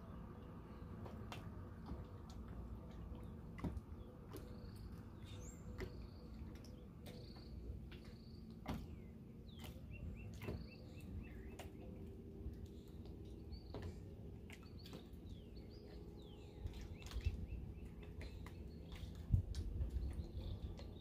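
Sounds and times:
low rush of wind or water: 0.0s - 21.0s
birds whistling and chirping: 4.0s - 12.1s, 12.7s - 21.0s.

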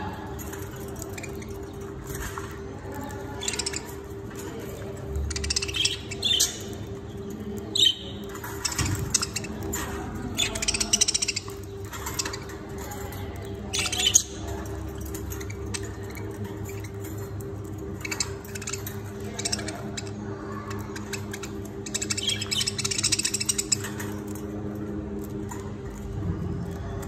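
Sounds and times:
rattling bird trill: 0.0s - 27.0s.

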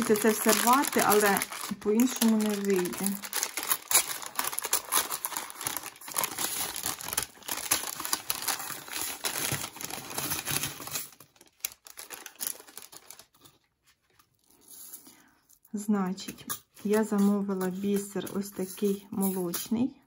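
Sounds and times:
packaging crinkling and tearing: 0.0s - 15.0s.

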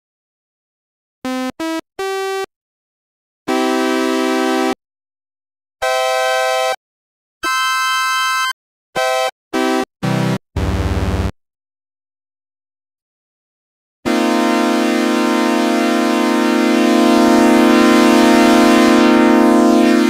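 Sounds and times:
analogue synthesizer notes and chords: 10.0s - 11.3s, 14.1s - 20.0s.

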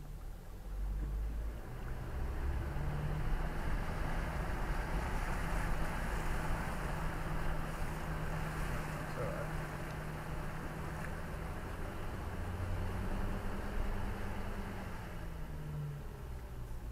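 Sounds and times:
vehicle engine running low: 0.0s - 16.9s.

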